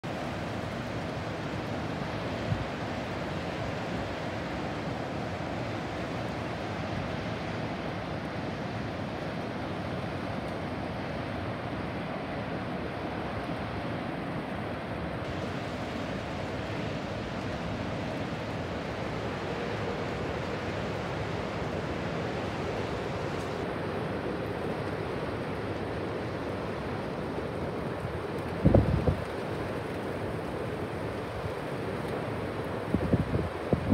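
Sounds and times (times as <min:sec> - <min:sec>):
storm surf rushing: 0:00.0 - 0:33.9
wind buffeting microphone: 0:28.6 - 0:29.4, 0:32.8 - 0:33.9.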